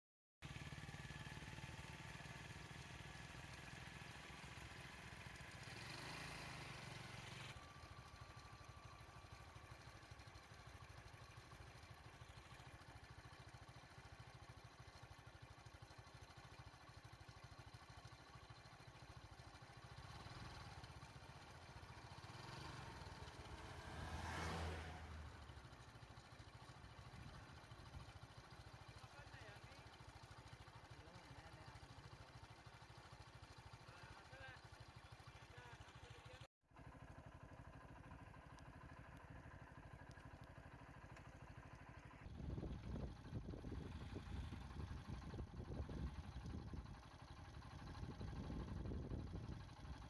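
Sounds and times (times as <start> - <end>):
vehicle engine running: 0.4 - 50.0
vehicle passing: 23.5 - 25.2.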